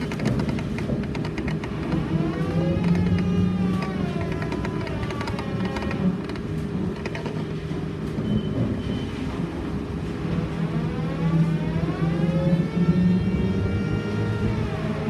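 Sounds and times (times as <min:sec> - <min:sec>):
electric drive whine: 0:00.0 - 0:07.4.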